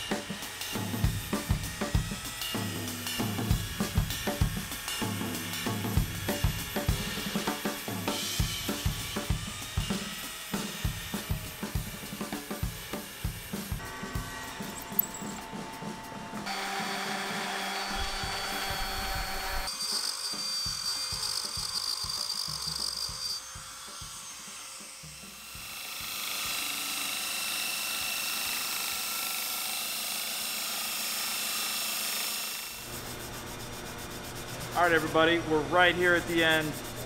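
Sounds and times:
drill press boring into brass: 16.4s - 24.5s.

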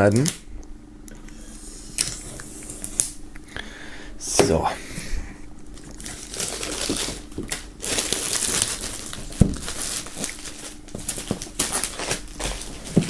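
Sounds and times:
plastic film crinkling: 5.7s - 13.0s.

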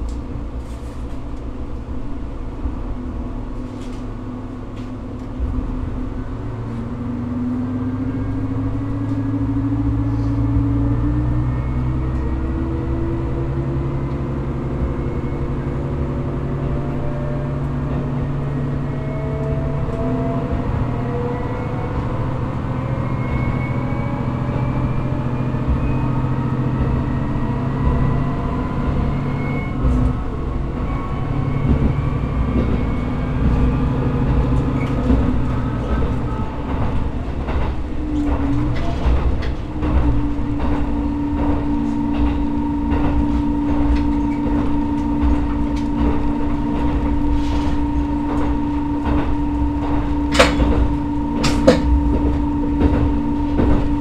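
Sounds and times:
diesel railcar engine: 0.0s - 54.0s
wheels clacking over rail joints: 11.8s - 54.0s.

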